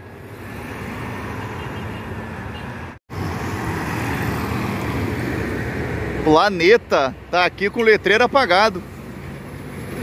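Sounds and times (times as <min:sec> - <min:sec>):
car passing: 0:00.0 - 0:07.6.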